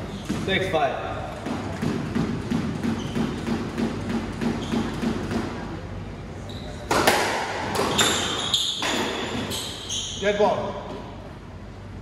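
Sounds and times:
squash ball hit by racket: 0:01.4 - 0:05.8, 0:06.8 - 0:09.7
shoes squeaking on hardwood floor: 0:02.8 - 0:03.5, 0:04.5 - 0:05.0, 0:06.4 - 0:06.9, 0:07.9 - 0:10.4.

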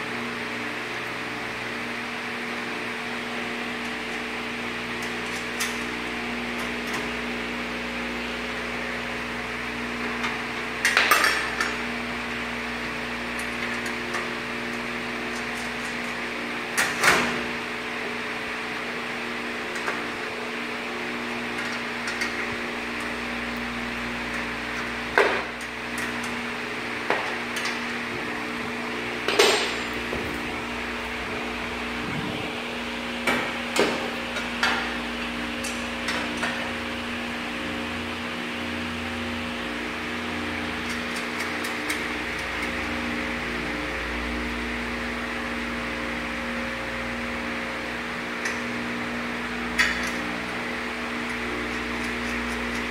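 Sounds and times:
steady background hum: 0:00.0 - 0:52.9.

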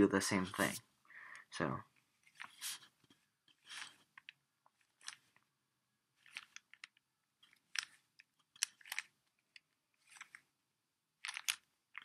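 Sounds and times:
puzzle cube layers clicking: 0:03.5 - 0:05.4, 0:06.2 - 0:10.5, 0:11.2 - 0:12.0.

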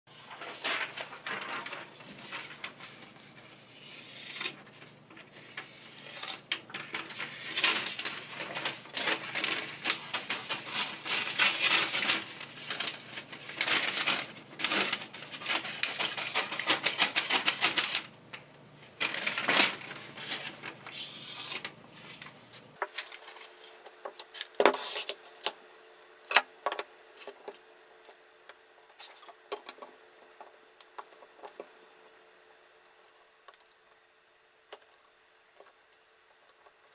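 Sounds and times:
paper scraping against knife blade: 0:00.2 - 0:04.6, 0:23.0 - 0:25.3.

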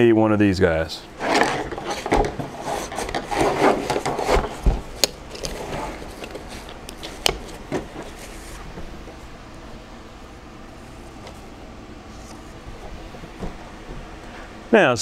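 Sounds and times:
fabric and metal scraping: 0:01.1 - 0:09.3.

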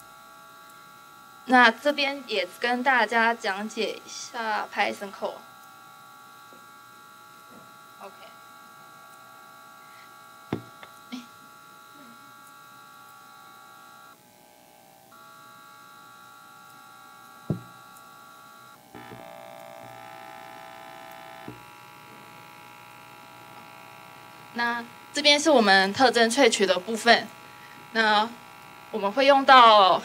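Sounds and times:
electrical buzz of thin tones: 0:00.0 - 0:30.0
short knocks: 0:10.5 - 0:10.8, 0:17.5 - 0:17.8.

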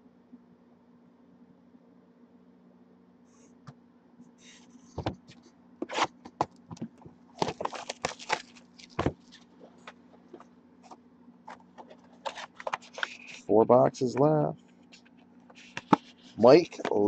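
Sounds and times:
shrink wrap crinkling and clicking: 0:07.4 - 0:10.4, 0:11.5 - 0:13.5.

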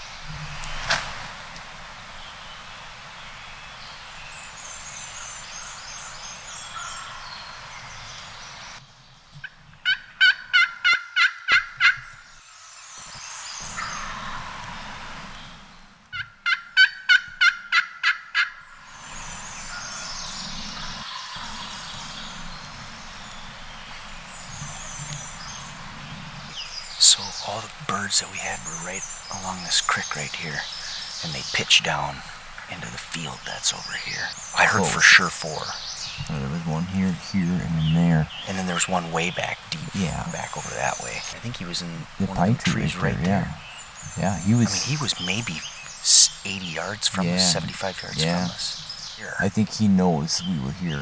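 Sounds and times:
faint songbirds chirping: 0:00.0 - 0:51.0
turkey call yelps: 0:09.8 - 0:12.2, 0:16.1 - 0:18.6.

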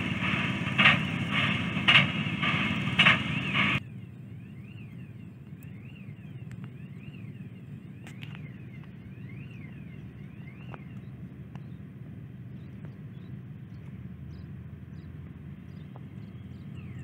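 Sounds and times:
low rumble: 0:00.0 - 0:08.0
faint rising and falling whistle: 0:00.0 - 0:11.1.

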